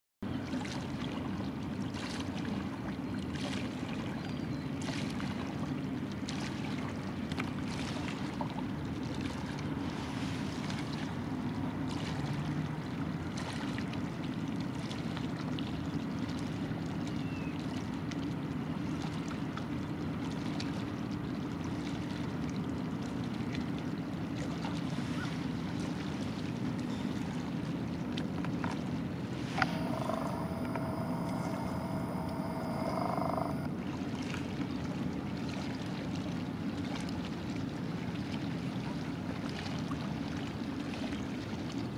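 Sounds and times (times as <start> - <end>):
boat engine droning: 28.6 - 34.0
faint ticks: 29.6 - 33.7.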